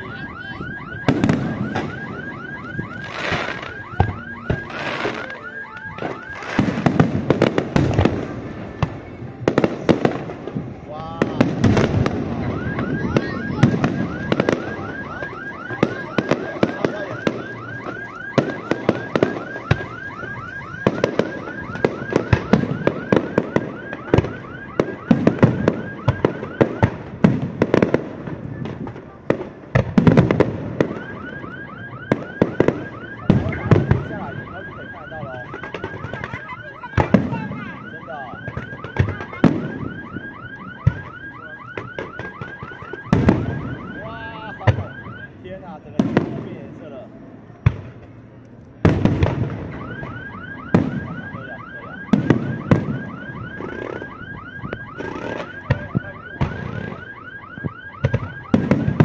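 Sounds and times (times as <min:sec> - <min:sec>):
car alarm warbling: 0:00.0 - 0:09.0, 0:11.2 - 0:29.4, 0:30.1 - 0:45.4, 0:49.4 - 0:59.0
fireworks bursting with loud bangs: 0:00.0 - 0:47.0, 0:47.6 - 0:59.0.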